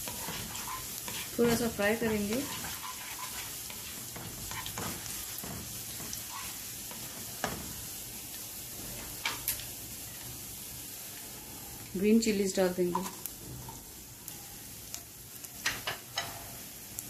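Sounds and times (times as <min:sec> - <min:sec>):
spatula knocking on wok: 0:00.0 - 0:06.2
garlic sizzling in hot oil: 0:00.0 - 0:17.0.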